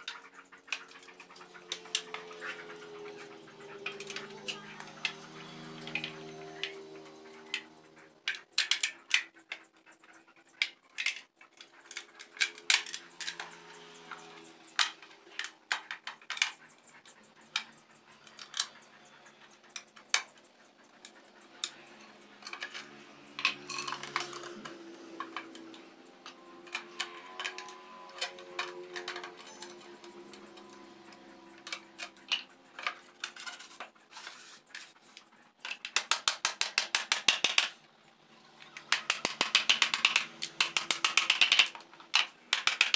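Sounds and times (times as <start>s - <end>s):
quick run of clicks: 38.6s - 42.9s.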